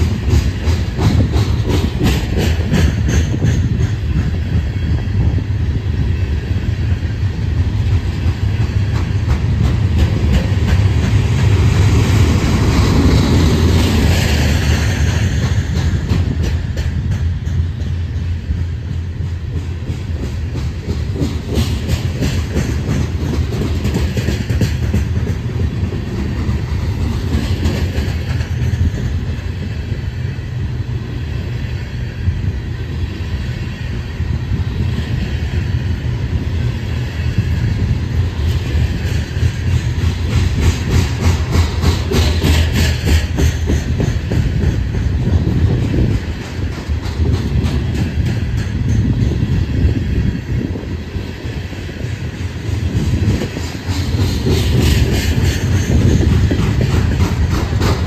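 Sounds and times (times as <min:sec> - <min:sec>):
wheels clacking over rail joints: 0:00.0 - 0:05.4, 0:07.6 - 0:30.0, 0:36.6 - 0:50.8, 0:51.5 - 0:58.0
freight train rumbling past: 0:00.0 - 0:58.0.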